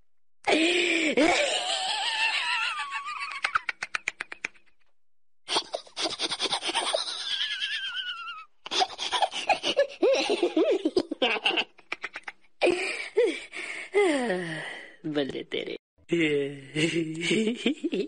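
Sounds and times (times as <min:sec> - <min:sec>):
high-pitched giggling: 0:05.5 - 0:12.8.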